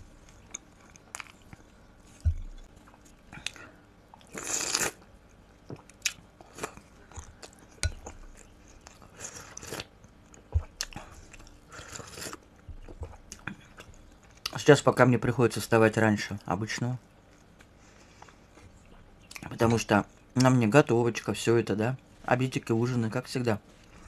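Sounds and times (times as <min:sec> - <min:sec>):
slurping: 0:04.2 - 0:05.0
wet mouth clicks and chewing: 0:05.7 - 0:11.6.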